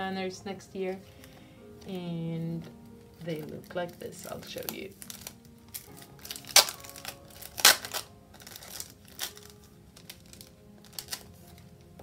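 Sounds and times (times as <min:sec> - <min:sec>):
soft background music: 0:00.0 - 0:12.0
plastic packaging rustling: 0:02.5 - 0:12.0
sharp plastic crinkles: 0:02.6 - 0:12.0.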